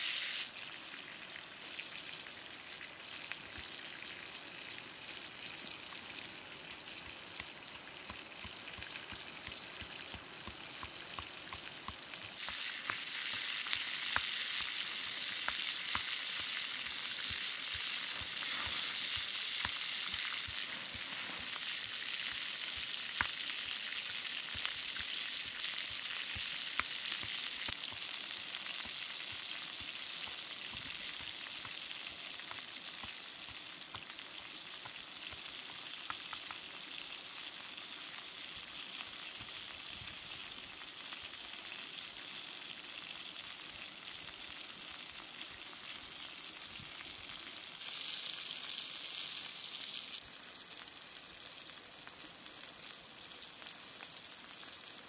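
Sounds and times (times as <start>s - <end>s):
frog sizzling on hot stone: 0.0s - 55.0s
pops and crackles: 5.8s - 40.2s.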